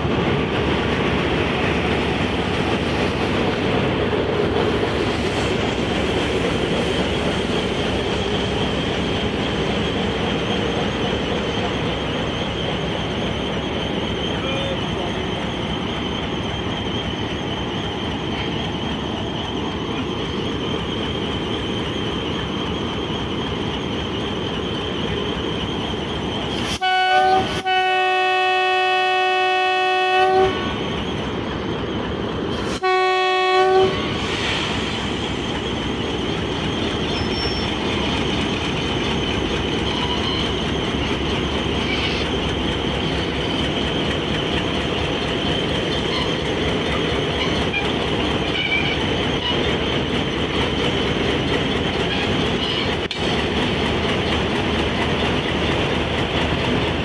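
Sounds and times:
locomotive engine and wheels rumbling: 0.0s - 57.0s
locomotive air horn: 26.7s - 30.8s, 32.8s - 34.2s.

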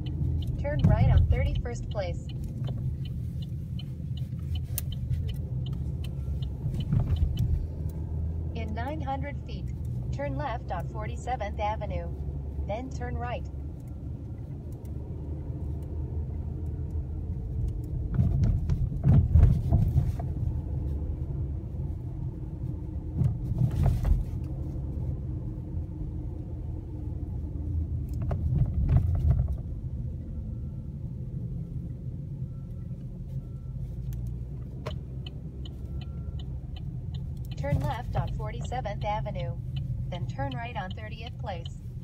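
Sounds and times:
light ticks: 0.0s - 8.0s, 34.0s - 42.0s
car cabin road rumble: 0.0s - 42.0s.

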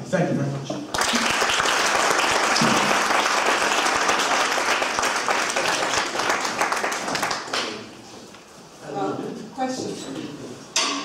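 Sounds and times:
audience applauding: 0.9s - 7.8s.

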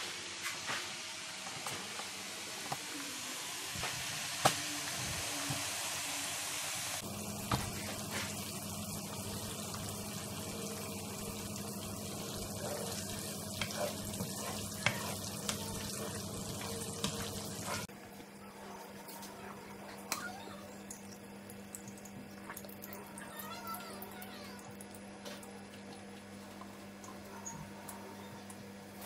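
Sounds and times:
carrot sizzling in oil: 0.0s - 17.9s.

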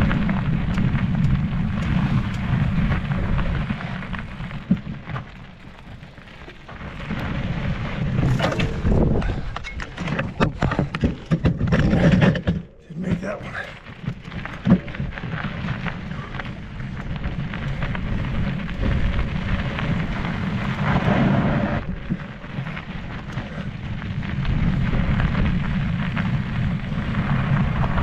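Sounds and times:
bike tyres on gravel: 0.0s - 28.0s
wind rumbling on microphone: 0.0s - 28.0s.

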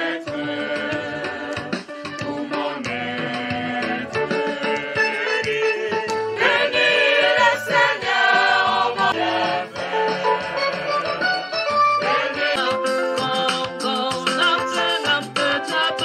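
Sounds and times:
young choir singing a hymn: 0.0s - 11.2s, 12.0s - 12.6s.

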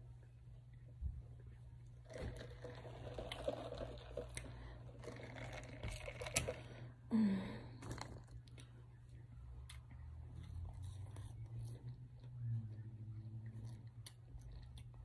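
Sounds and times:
drinking from paper cup: 2.1s - 6.8s.

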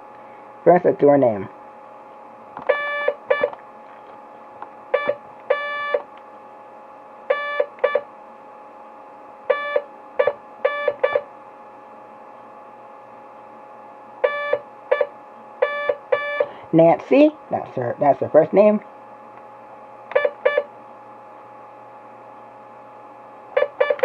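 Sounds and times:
faint radio hiss: 0.6s - 2.6s, 11.5s - 14.2s, 15.2s - 15.6s
morse code beeps: 2.7s - 3.5s, 5.0s - 6.0s, 7.3s - 8.0s, 9.5s - 11.3s, 14.2s - 16.5s, 20.1s - 20.7s, 23.6s - 24.0s.

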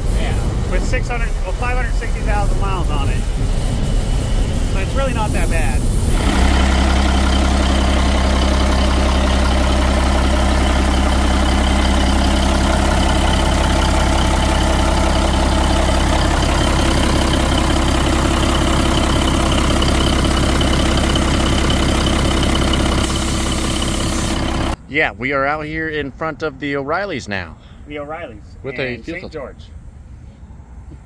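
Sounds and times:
diesel truck engine droning: 0.0s - 24.8s.

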